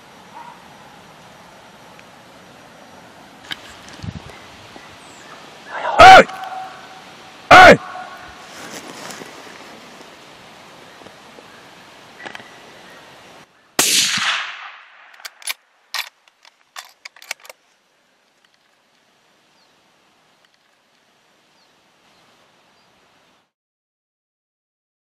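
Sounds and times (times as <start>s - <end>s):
loud gunshot: 13.8s - 15.1s.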